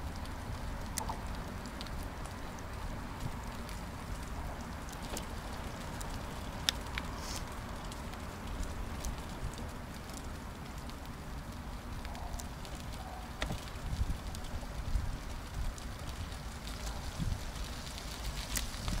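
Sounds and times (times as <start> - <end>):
bicycle tyres rumbling: 0.0 - 19.0
wind on microphone: 13.4 - 17.6, 18.5 - 19.0.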